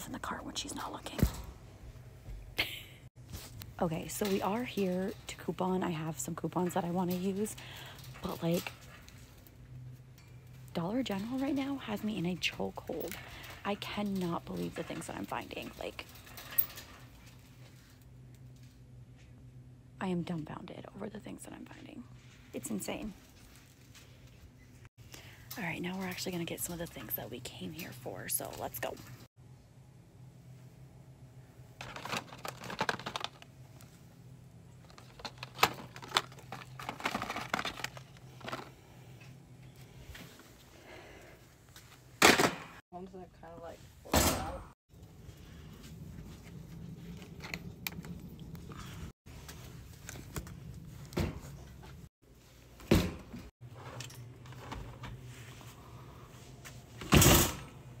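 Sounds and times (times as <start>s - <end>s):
wire shopping cart rumbling: 3.4s - 9.4s, 10.7s - 17.6s, 31.8s - 33.5s, 34.8s - 38.9s
plastic packaging clicking and crinkling: 31.8s - 33.9s, 34.8s - 38.8s.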